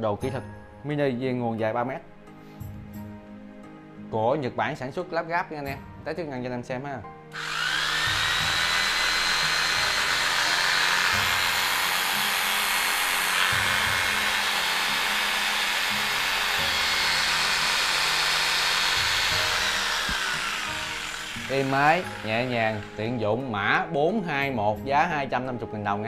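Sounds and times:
jigsaw motor whining: 0:07.3 - 0:23.2.

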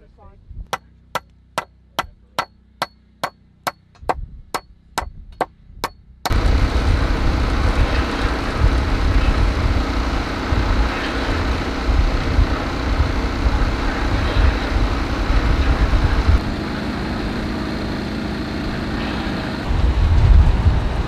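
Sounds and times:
loud rushing rumble: 0:06.3 - 0:21.0.

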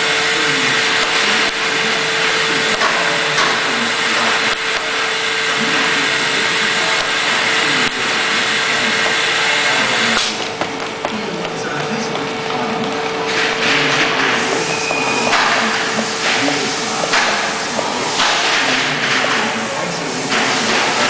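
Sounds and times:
vacuum forming machine running: 0:00.0 - 0:21.0.

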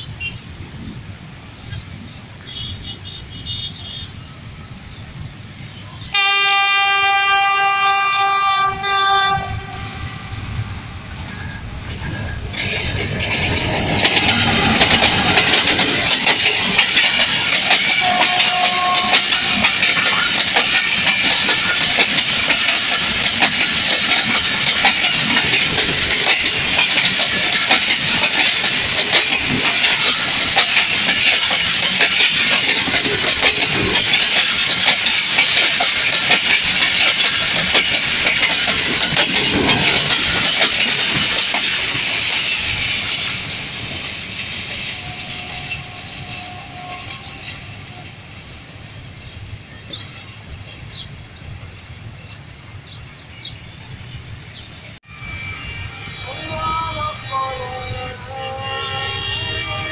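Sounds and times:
train passing rumble: 0:00.0 - 0:59.9
wheels clattering over rail joints: 0:11.3 - 0:48.2.

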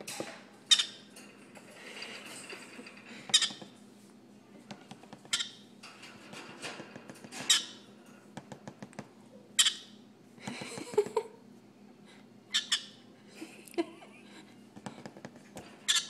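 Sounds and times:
parrot squawking: 0:09.6 - 0:10.0, 0:12.5 - 0:13.0.

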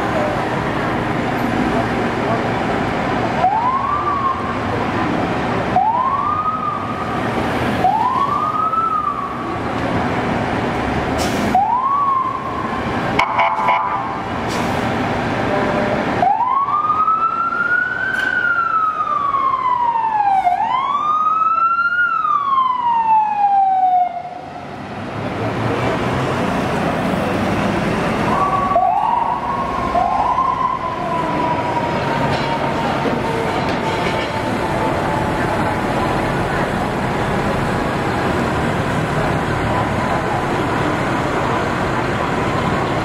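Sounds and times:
fire truck engine noise: 0:00.0 - 0:43.0
fire truck siren wailing: 0:02.1 - 0:24.8, 0:25.9 - 0:43.0
second fire truck siren yelping: 0:11.2 - 0:14.9, 0:15.6 - 0:24.5, 0:28.2 - 0:36.8.

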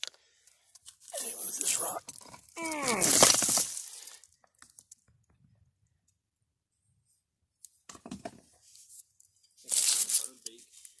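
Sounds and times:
rocks crunching and scraping: 0:00.8 - 0:05.0.

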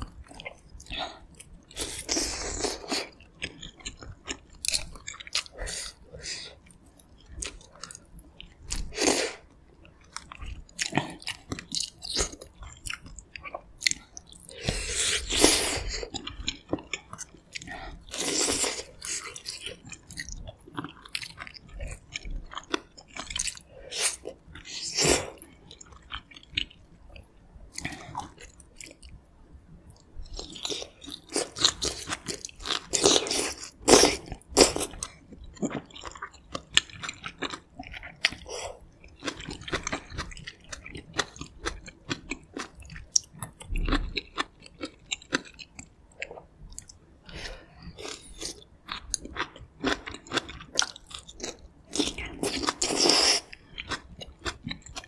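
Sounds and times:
chewing and biting meat: 0:30.4 - 0:38.5, 0:47.9 - 0:55.0.

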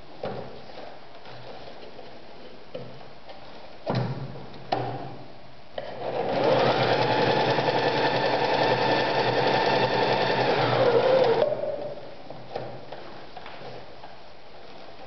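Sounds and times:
sewing machine stitching: 0:06.0 - 0:11.5.

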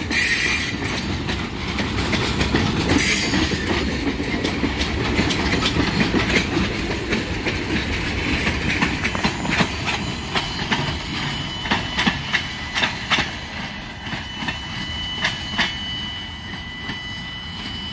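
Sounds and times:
train wheels clicking over rail joints: 0:00.0 - 0:17.8
freight train rumble: 0:00.0 - 0:17.9
thin steady high tone: 0:09.3 - 0:17.9.

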